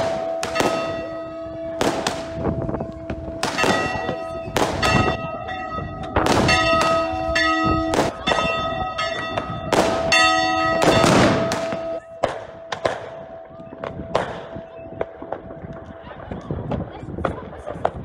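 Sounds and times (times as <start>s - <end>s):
fireworks bursting: 0.0s - 5.2s, 6.2s - 8.4s, 9.4s - 10.2s, 10.8s - 16.3s
church bells ringing: 0.0s - 16.4s.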